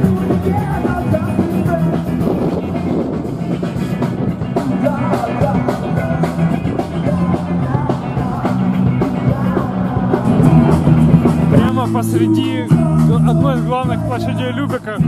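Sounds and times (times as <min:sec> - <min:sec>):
loud rock music with drums: 0:00.0 - 0:15.0.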